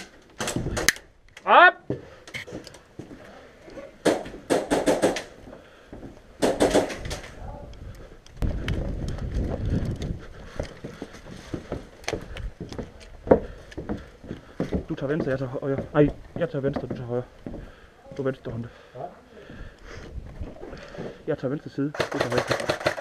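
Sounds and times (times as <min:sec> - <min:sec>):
sharp snapping shots: 0:04.1 - 0:05.3, 0:06.4 - 0:07.3, 0:22.0 - 0:23.0.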